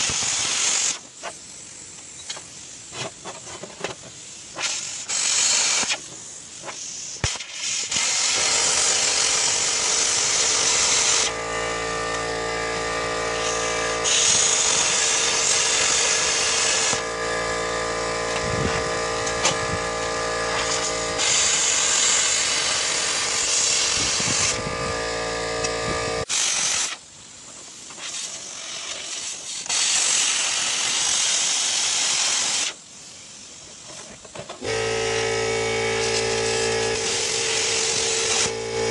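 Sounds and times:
plasma cutter hissing: 0:00.0 - 0:33.9, 0:34.6 - 0:38.9
machine hum with pitched drone: 0:07.3 - 0:26.3, 0:34.6 - 0:38.9.

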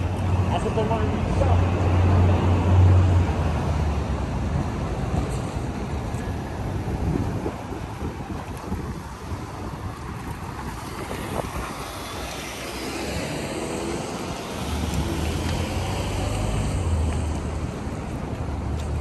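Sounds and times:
city street traffic: 0:00.0 - 0:19.0
wind buffeting microphone: 0:04.0 - 0:19.0.

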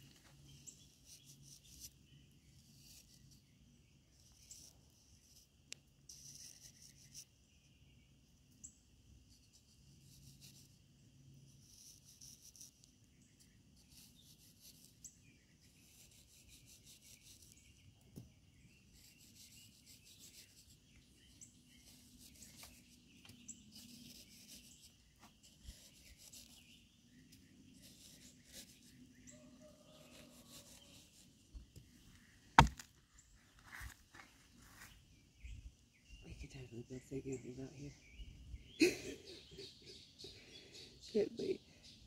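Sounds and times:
knife scraping damp sand: 0:15.6 - 0:17.6, 0:19.0 - 0:20.8, 0:21.4 - 0:26.8, 0:27.7 - 0:29.0, 0:29.8 - 0:31.3.

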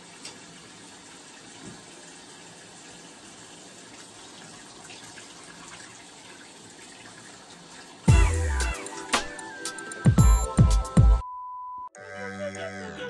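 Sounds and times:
tap water running: 0:00.0 - 0:08.4
loud music with falling tone: 0:08.1 - 0:11.2, 0:12.0 - 0:13.0.

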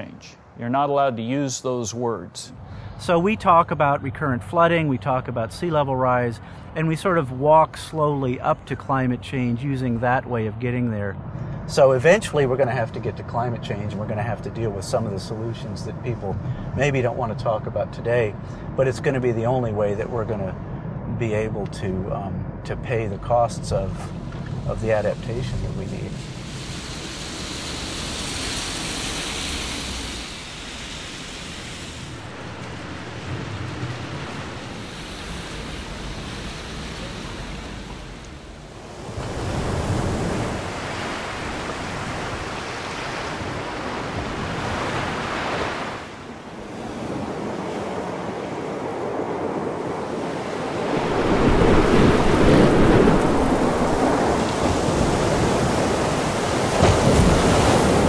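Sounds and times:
surf crashing: 0:23.6 - 0:58.0
wind buffeting microphone: 0:30.5 - 0:58.0.

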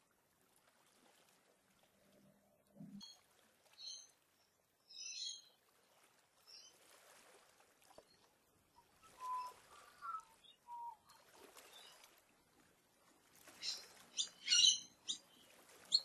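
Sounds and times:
bird whistled notes: 0:09.0 - 0:11.0
birds chirping: 0:13.6 - 0:16.0.

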